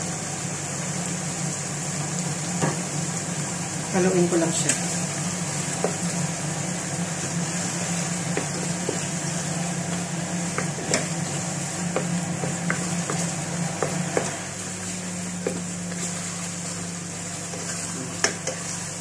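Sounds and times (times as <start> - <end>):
food frying in a pot: 0.0 - 19.0
wooden spatula tapping a pan: 5.7 - 6.1, 8.2 - 9.1, 9.9 - 11.2, 11.9 - 14.4, 15.4 - 16.0, 17.5 - 18.6.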